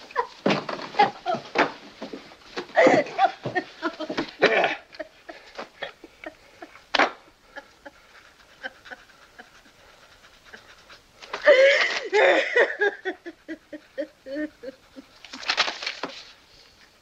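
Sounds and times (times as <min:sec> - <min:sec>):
woman sobbing and wailing: 0:02.7 - 0:06.7, 0:11.4 - 0:15.2.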